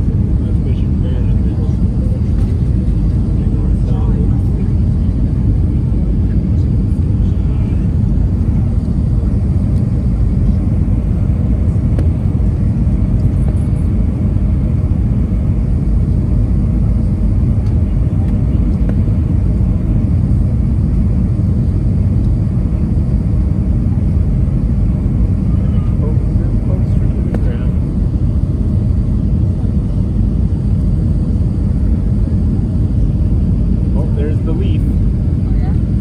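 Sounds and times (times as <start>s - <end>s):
airliner cabin engine rumble: 0.0s - 36.0s.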